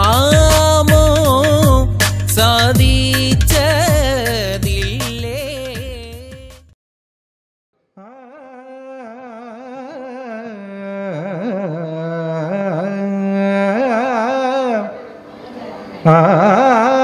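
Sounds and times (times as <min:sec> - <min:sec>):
man singing ornamented notes: 0:00.0 - 0:06.6, 0:08.0 - 0:15.2, 0:16.0 - 0:17.0.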